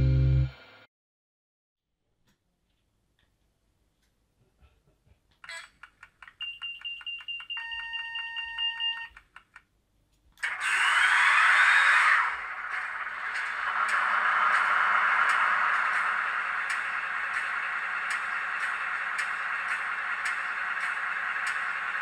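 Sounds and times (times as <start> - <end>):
model diesel engine running: 12.5 - 22.0
rapid ticking: 12.7 - 22.0.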